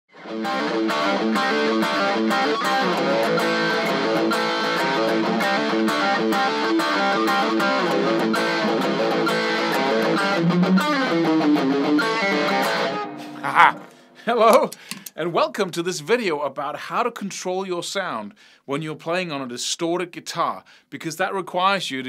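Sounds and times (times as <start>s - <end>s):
electric guitar riff: 0.1s - 14.2s.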